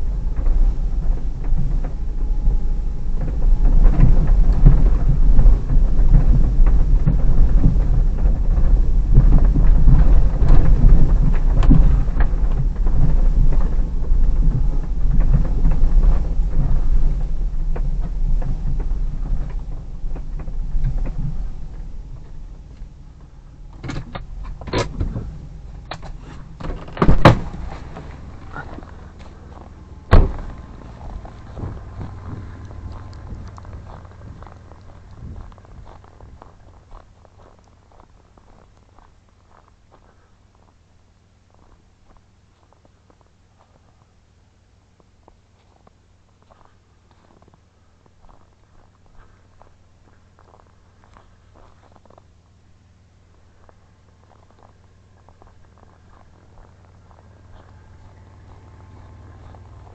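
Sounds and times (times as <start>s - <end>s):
suv engine and tyres rumbling: 0.0s - 59.9s
car door opening and shutting: 23.2s - 33.5s
car door slamming: 25.9s - 28.0s, 30.1s - 30.6s
car body and suspension knocks: 26.6s - 28.6s, 30.1s - 32.5s.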